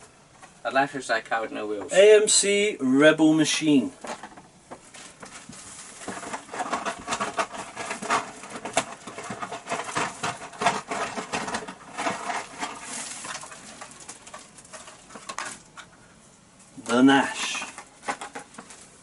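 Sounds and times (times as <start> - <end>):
plastic packaging crinkling: 4.0 - 15.9, 16.8 - 19.0.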